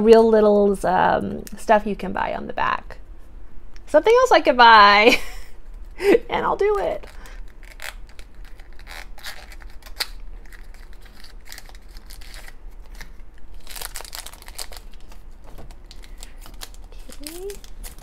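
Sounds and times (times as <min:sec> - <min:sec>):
plastic wrapper crinkling: 0:06.9 - 0:18.0.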